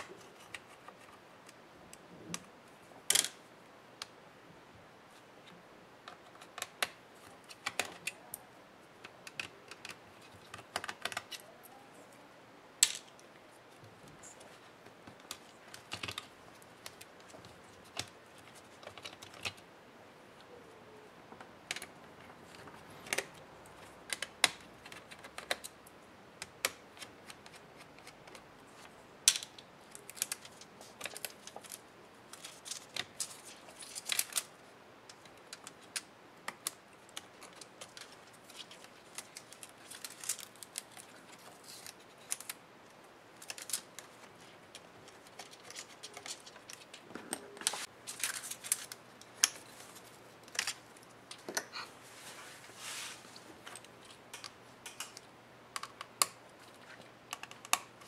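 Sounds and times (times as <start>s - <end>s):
small tool clicking on laptop parts: 57.3s - 58.0s.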